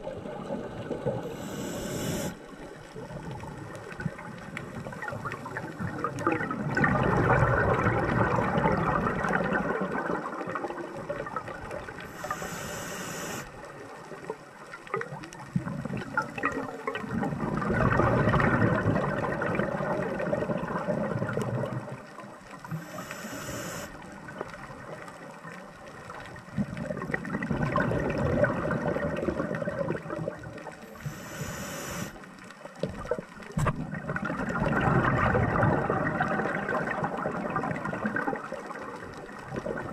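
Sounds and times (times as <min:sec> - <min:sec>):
exhaled bubbles rushing: 0:00.0 - 0:12.4, 0:15.0 - 0:22.9, 0:26.0 - 0:30.8, 0:33.0 - 0:39.9
regulator inhale hiss: 0:01.2 - 0:03.0, 0:12.0 - 0:13.7, 0:22.6 - 0:24.2, 0:30.9 - 0:32.4.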